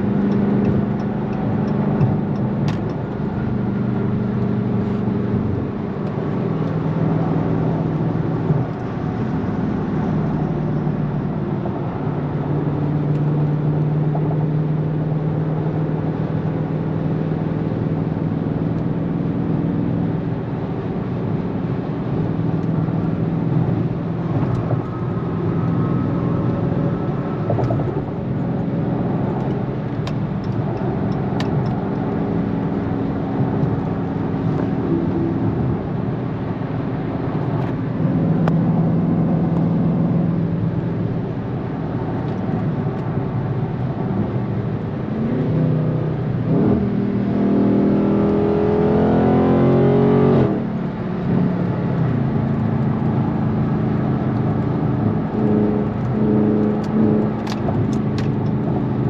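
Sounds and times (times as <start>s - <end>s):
car engine droning in cabin: 0.0s - 59.0s
tyre and road noise: 0.0s - 59.0s.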